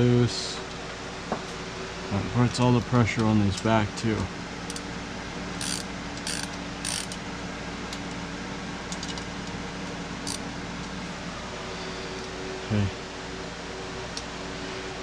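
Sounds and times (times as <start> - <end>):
fan-like hum: 0.0 - 15.0
hand ratchet clicking: 5.6 - 7.2.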